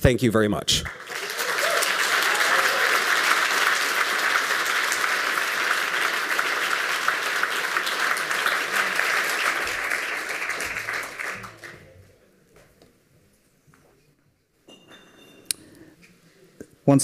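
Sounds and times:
large audience applauding: 0.8 - 12.0.

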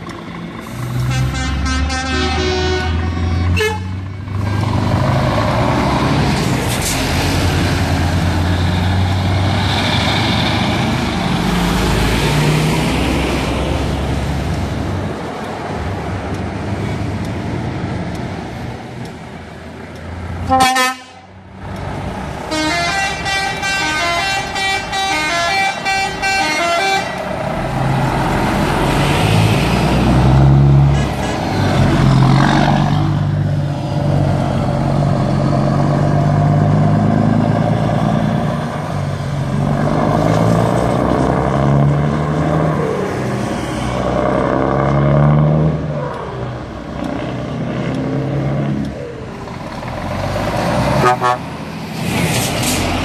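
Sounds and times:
trucks driving past: 0.0 - 53.0
musical air horn tune: 1.1 - 4.0, 20.5 - 21.3, 22.5 - 27.2, 51.0 - 51.4.

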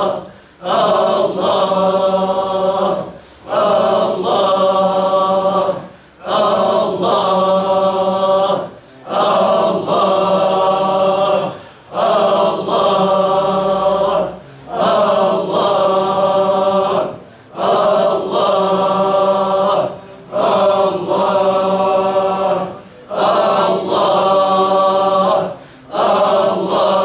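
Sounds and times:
men chanting together: 0.0 - 27.0
breaths between calls: 0.2 - 0.6, 25.6 - 25.9.

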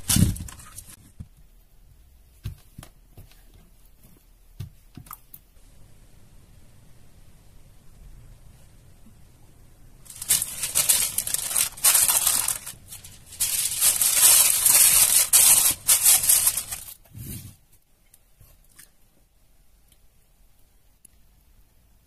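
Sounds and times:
aluminium foil crinkling: 0.0 - 1.0, 10.1 - 17.0.

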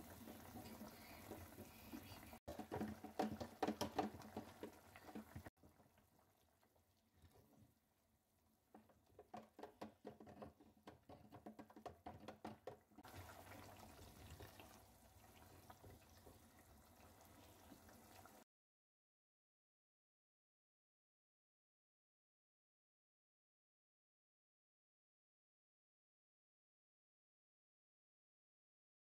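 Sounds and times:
spatula stirring in a pot: 0.0 - 7.6
gravy popping and bubbling: 0.0 - 7.8, 8.8 - 18.4.

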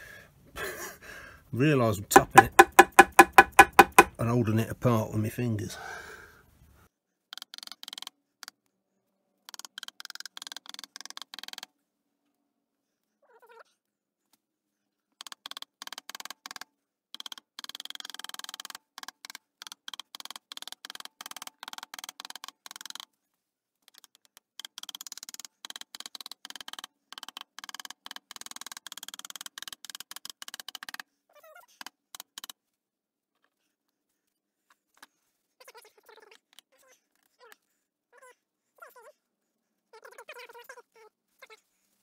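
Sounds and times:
light taps on metal parts: 2.1 - 4.2.

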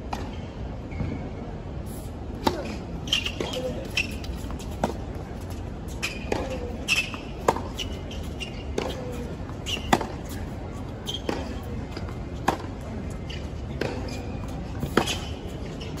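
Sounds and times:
tennis balls struck by rackets: 2.4 - 5.2, 6.0 - 8.0, 8.6 - 10.4, 11.1 - 12.9, 13.7 - 16.0
tennis balls bouncing on court: 2.4 - 10.4, 11.0 - 16.0
shoe squeaks on court: 2.6 - 5.0, 5.9 - 10.4, 11.0 - 11.6, 13.2 - 16.0.

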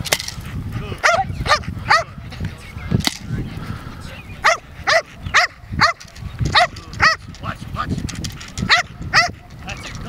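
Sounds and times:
dog barking: 1.0 - 2.1, 4.4 - 7.2, 8.7 - 9.5
sharp crack: 3.0 - 3.3.

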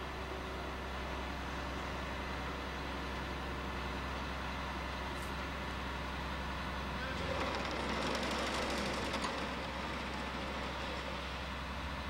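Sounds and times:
vibratory pile hammer running: 6.9 - 11.6.

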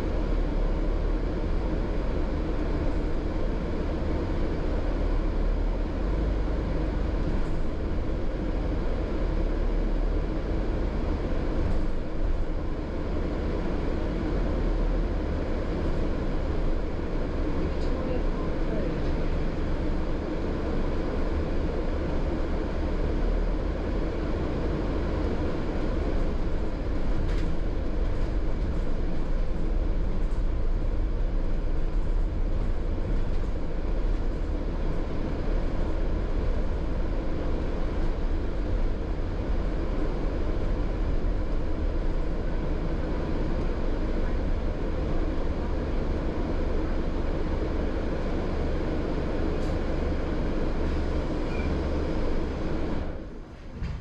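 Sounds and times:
bus engine and road noise: 0.0 - 54.0.

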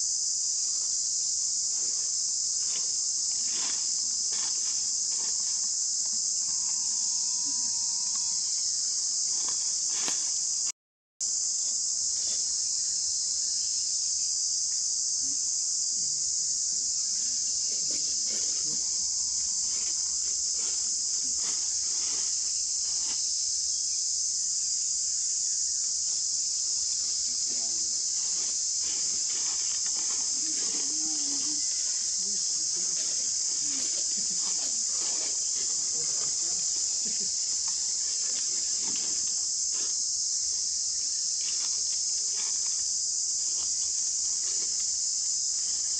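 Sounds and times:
insects buzzing: 0.0 - 45.9.

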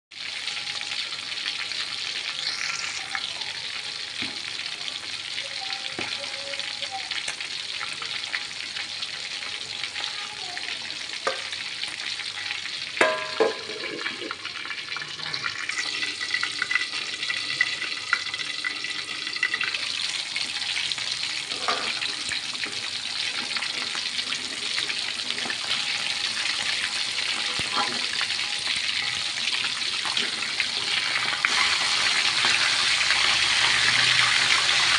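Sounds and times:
oil sizzling: 0.1 - 34.9
lid clanking onto wok: 13.0 - 14.2.

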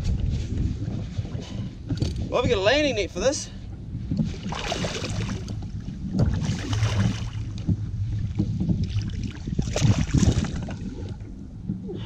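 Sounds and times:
wind on microphone: 0.0 - 12.0
water sloshing: 4.1 - 11.4.

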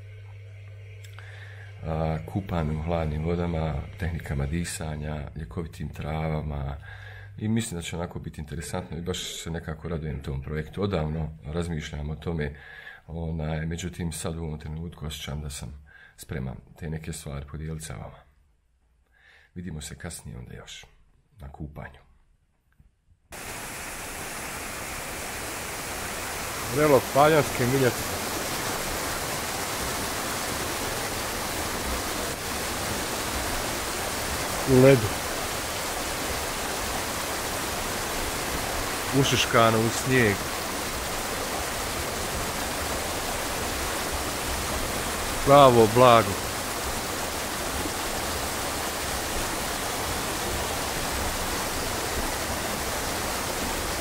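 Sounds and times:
small waterfall: 23.3 - 54.0
stream water rushing: 23.3 - 54.0.

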